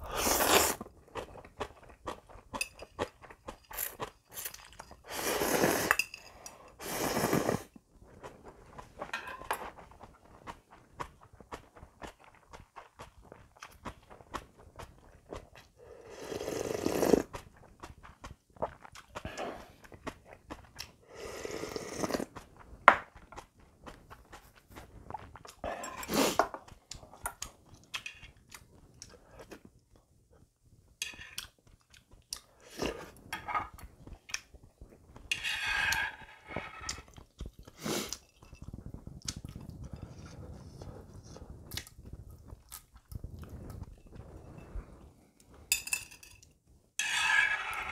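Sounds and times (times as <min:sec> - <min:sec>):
slurping broth: 0:00.0 - 0:01.3, 0:03.7 - 0:09.0, 0:15.4 - 0:18.0, 0:18.6 - 0:22.6, 0:24.2 - 0:27.2, 0:32.5 - 0:34.2, 0:35.2 - 0:42.6, 0:47.0 - 0:47.9
chewing: 0:08.1 - 0:21.0, 0:21.6 - 0:30.1, 0:31.2 - 0:45.6.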